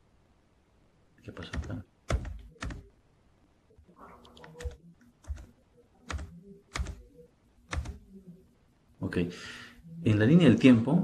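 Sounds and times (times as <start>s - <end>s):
keyboard keys tapping: 1.4s - 2.9s, 4.2s - 7.1s, 7.7s - 8.1s.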